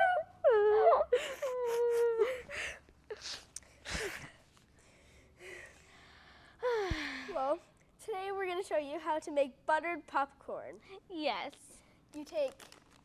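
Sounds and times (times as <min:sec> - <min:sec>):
girls mock crying: 0:00.0 - 0:02.8.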